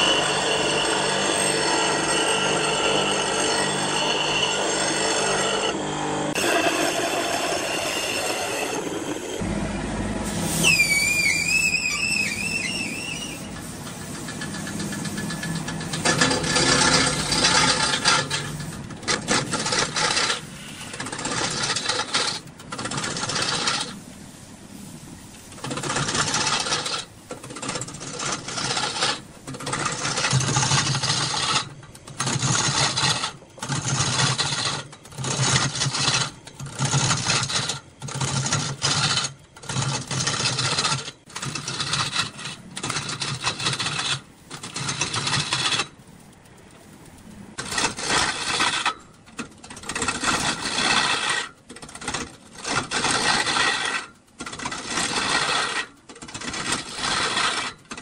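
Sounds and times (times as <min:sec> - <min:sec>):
lathe tool cutting wood: 0:00.0 - 0:09.5, 0:10.7 - 0:24.0, 0:25.5 - 0:45.8
low hum: 0:07.0 - 0:11.4.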